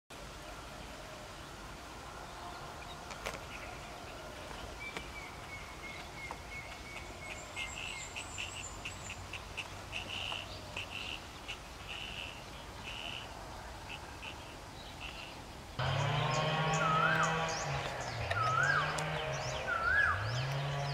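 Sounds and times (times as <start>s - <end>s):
steady background hiss: 0.1s - 20.9s
animal trills: 15.8s - 20.9s.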